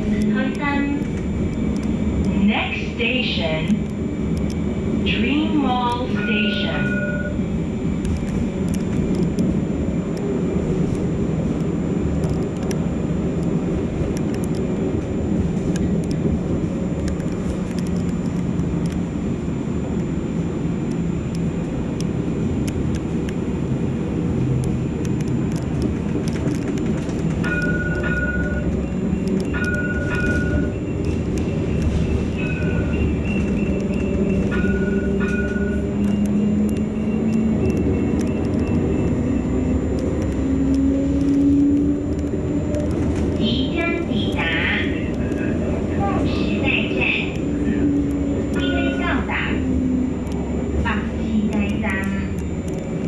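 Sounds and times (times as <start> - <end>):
tram wheels rumbling: 0.0 - 53.0
traction motor whine: 27.0 - 43.7
short electronic beeps: 27.4 - 40.0.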